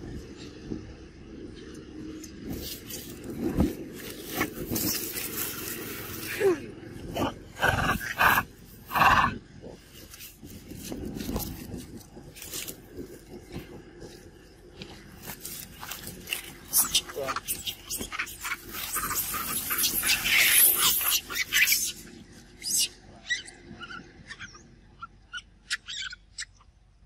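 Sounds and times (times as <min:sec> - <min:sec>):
macaques calling harshly: 0:15.7 - 0:26.5.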